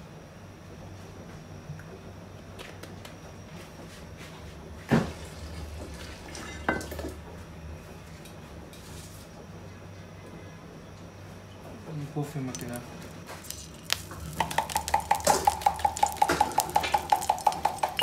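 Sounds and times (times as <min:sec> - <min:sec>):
steady low hum: 0:00.0 - 0:18.0
metal pan knocks: 0:14.4 - 0:18.0.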